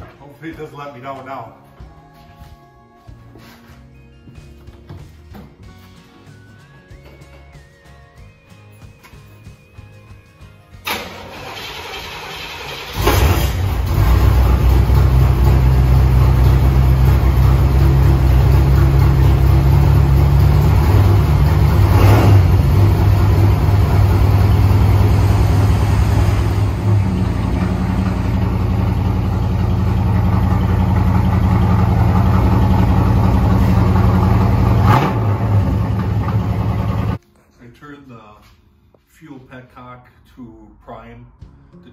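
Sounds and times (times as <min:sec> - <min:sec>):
car engine cold start idling: 0:10.8 - 0:37.2.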